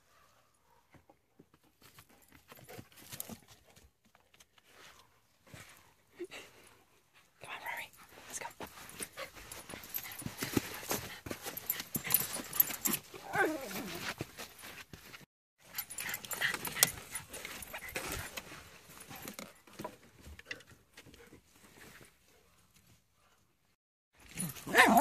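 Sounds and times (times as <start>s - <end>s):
dog whining: 12.8s - 14.1s
dogs rustling among logs: 15.7s - 22.3s.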